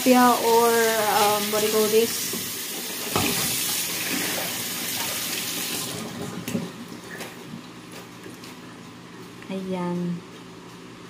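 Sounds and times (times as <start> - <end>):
kitchen tap running: 0.0 - 6.8.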